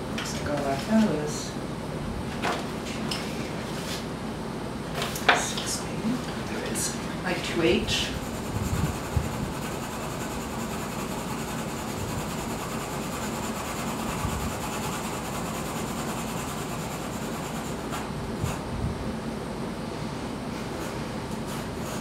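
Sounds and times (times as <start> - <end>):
pencil rubbing on paper: 8.0 - 18.6.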